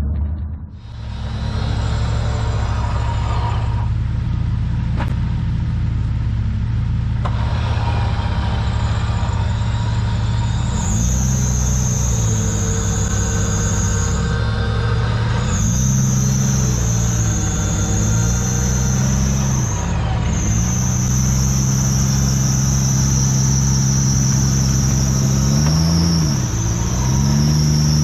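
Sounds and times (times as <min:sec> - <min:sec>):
off-road engine idling: 0:00.0 - 0:28.0
thin high whine: 0:07.8 - 0:28.0.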